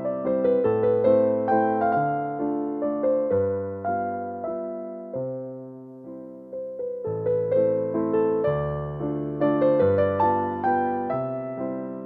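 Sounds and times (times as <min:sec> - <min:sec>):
gentle piano music: 0:00.0 - 0:12.0.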